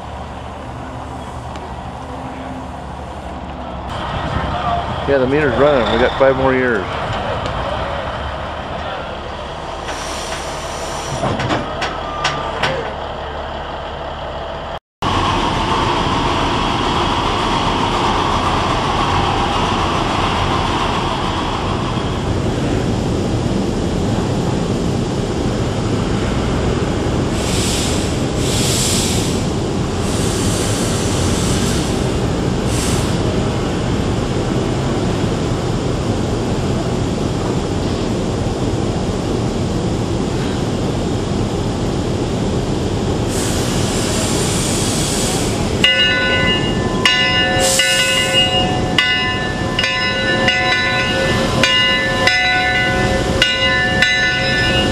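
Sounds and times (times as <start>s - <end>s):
sharp high steam hiss bursts: 9.8s - 11.2s, 27.3s - 33.4s, 43.2s - 54.9s
steam hissing: 9.8s - 11.3s, 27.2s - 33.6s, 43.2s - 54.9s.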